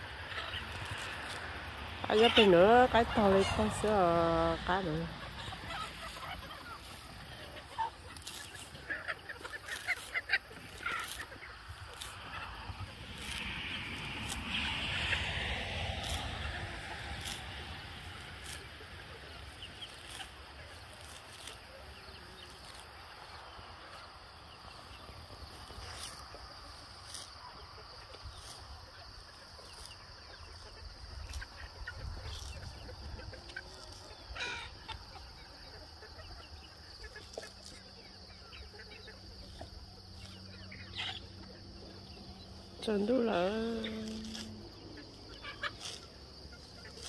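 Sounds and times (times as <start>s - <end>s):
knife slicing grass stems: 5.5s - 23.4s, 25.5s - 27.3s, 33.4s - 34.1s, 43.0s - 47.0s.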